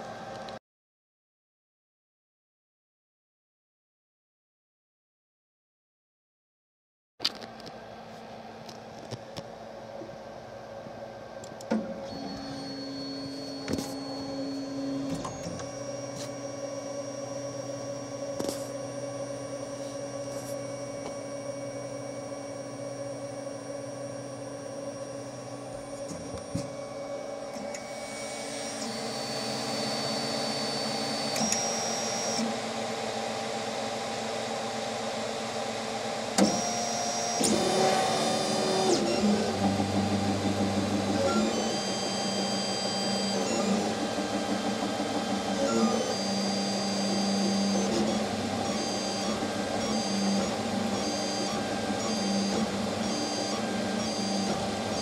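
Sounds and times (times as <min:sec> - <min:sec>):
fans humming and hissing: 0:07.3 - 0:55.0
stepper motors whining: 0:36.4 - 0:55.0.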